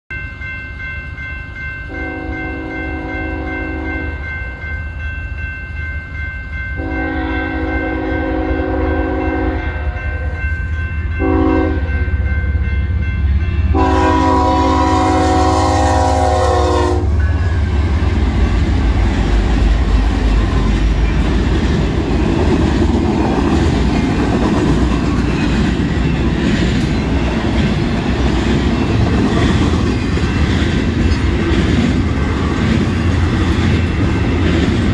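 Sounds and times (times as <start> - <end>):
crossing bell ringing: 0.1 - 34.9
locomotive air horn blasts: 1.9 - 4.1, 6.8 - 10.4, 11.2 - 12.0, 13.7 - 17.2
freight train wheels clattering: 12.6 - 34.9.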